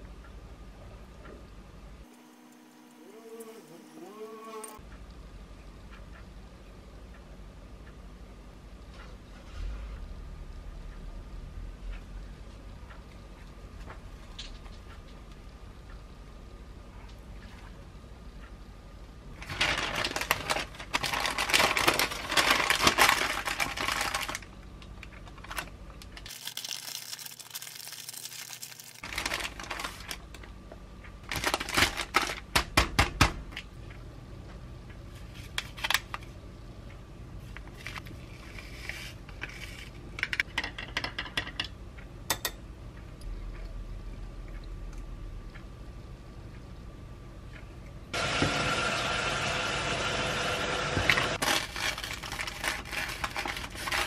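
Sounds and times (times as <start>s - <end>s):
baking paper crinkling: 19.4s - 24.5s, 25.2s - 30.3s, 31.2s - 32.7s, 51.4s - 54.0s.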